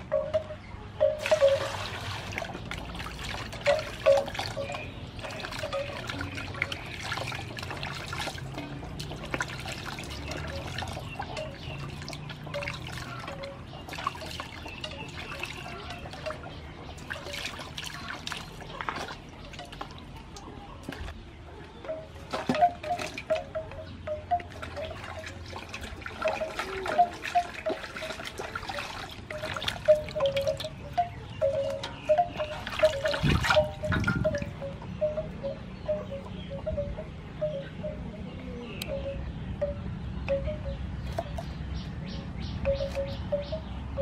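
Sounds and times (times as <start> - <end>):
water splashing in metal basin: 0.0 - 21.1, 21.8 - 36.5.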